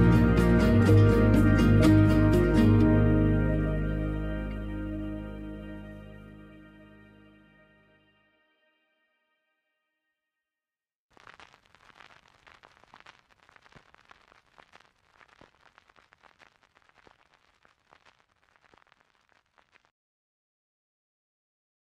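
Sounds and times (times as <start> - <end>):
faint crackling with pops: 11.1 - 19.9.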